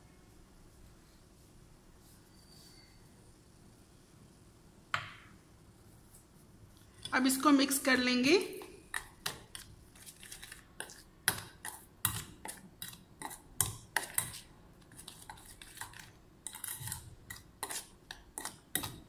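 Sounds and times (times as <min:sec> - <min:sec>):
spoon scraping metal bowl: 0:08.5 - 0:19.0.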